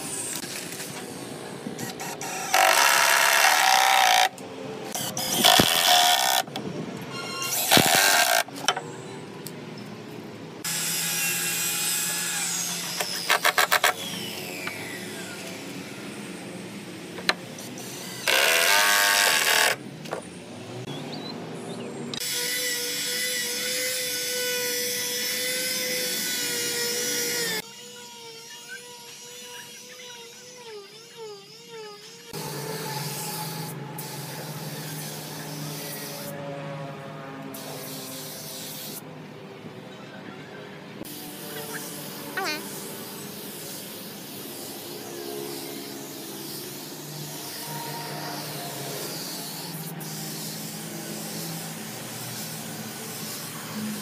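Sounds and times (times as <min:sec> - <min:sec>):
cordless drill boring into wood: 0:01.8 - 0:04.4, 0:05.0 - 0:06.5, 0:07.5 - 0:08.5, 0:10.7 - 0:15.8, 0:17.8 - 0:19.8.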